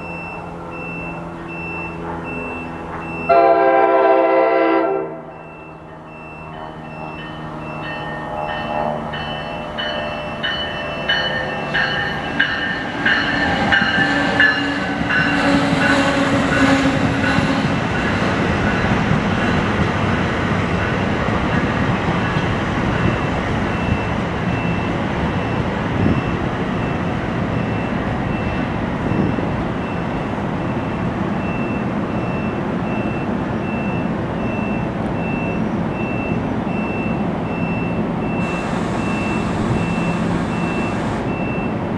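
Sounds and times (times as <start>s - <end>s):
train coaches rumbling: 0.0s - 41.9s
train wheels clicking over rail joints: 5.8s - 30.1s.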